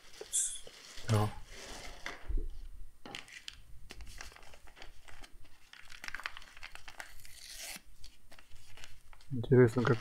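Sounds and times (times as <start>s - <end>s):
sachet crinkling and tearing: 3.4s - 10.0s.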